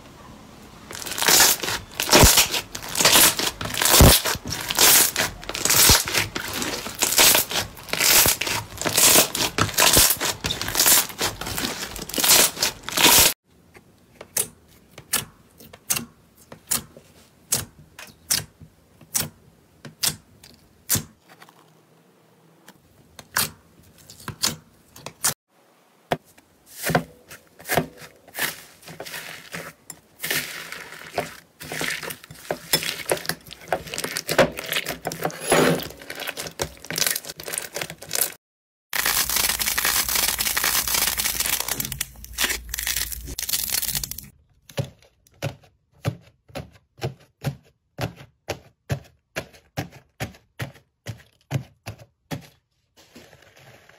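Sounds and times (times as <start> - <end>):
dried slime crust cracking: 0.9 - 13.3, 39.0 - 44.3
slime crackling and squishing: 0.9 - 13.4, 27.6 - 35.3, 35.9 - 38.4, 39.0 - 44.4.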